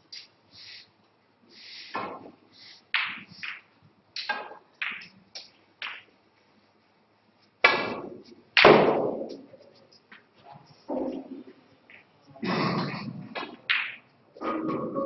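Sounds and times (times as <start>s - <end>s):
snooker balls clicking: 1.9s - 6.2s, 13.0s - 15.0s.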